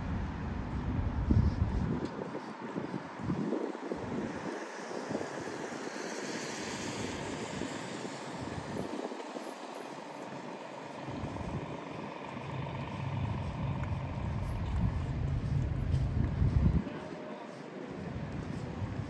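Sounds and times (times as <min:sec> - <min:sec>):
vehicles passing: 0:00.0 - 0:19.0
low rumble: 0:10.7 - 0:16.9.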